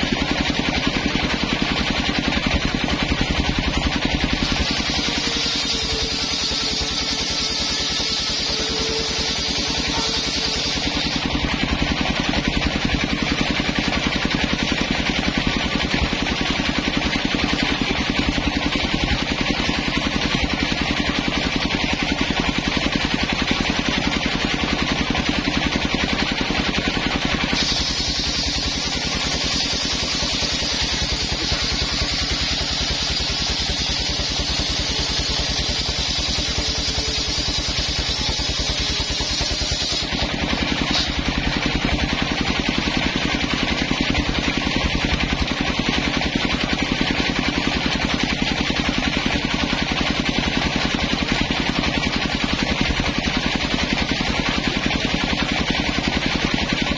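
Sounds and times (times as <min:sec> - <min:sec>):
saw bench engine running: 0:00.0 - 0:56.9
saw blade cutting log: 0:00.0 - 0:56.9.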